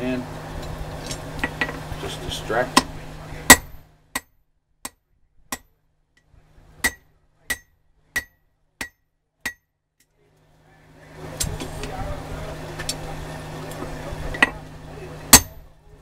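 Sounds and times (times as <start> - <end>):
hammer striking steel on anvil: 2.7 - 5.8, 6.8 - 9.7, 15.3 - 15.7.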